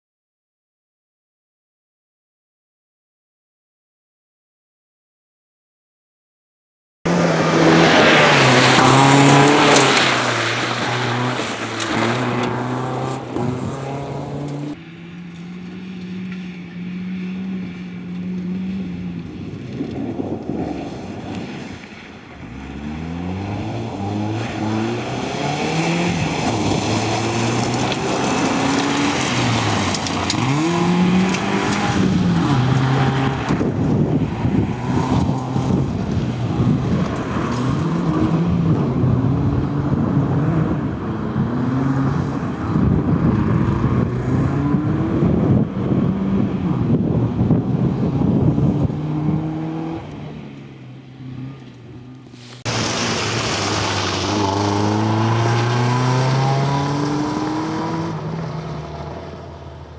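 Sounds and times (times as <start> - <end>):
rally car engine revving: 7.1 - 59.9
tyres on gravel: 7.4 - 38.5, 51.5 - 57.6.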